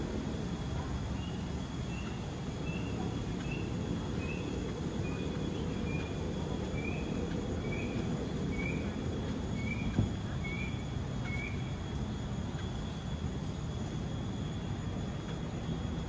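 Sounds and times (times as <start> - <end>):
low background rumble: 0.0 - 16.0
bird chirping: 1.2 - 11.8.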